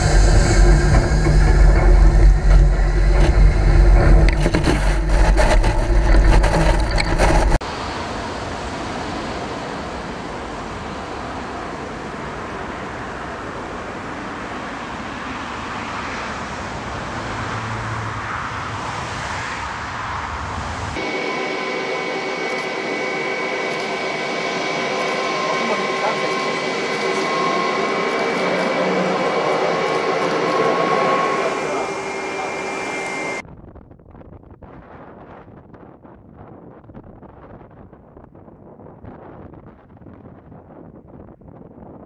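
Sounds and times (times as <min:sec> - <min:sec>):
jet blast rumble: 0:00.0 - 0:33.4
jet engine whine: 0:00.0 - 0:33.4
jet rushing noise: 0:00.0 - 0:33.4.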